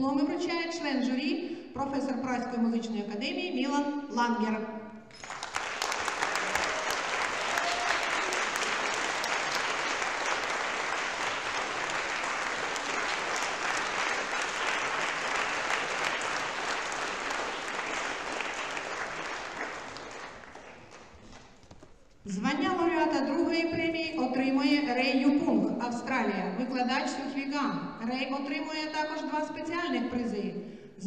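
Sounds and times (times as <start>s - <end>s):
audience applauding: 5.1s - 21.8s.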